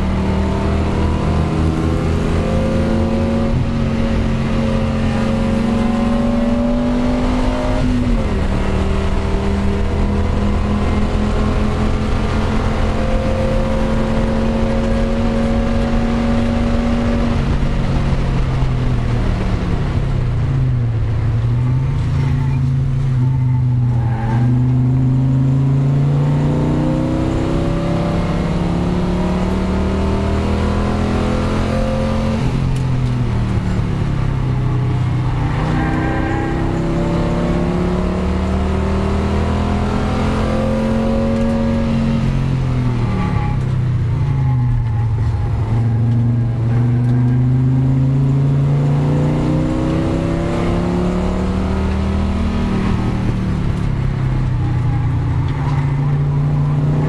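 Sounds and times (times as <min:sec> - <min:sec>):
race car engine accelerating: 0:00.0 - 0:57.0.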